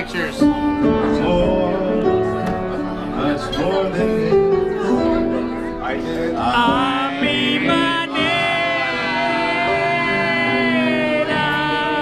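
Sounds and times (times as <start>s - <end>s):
electric keyboard: 0.0s - 12.0s
man singing into microphone: 1.0s - 2.4s, 6.3s - 12.0s.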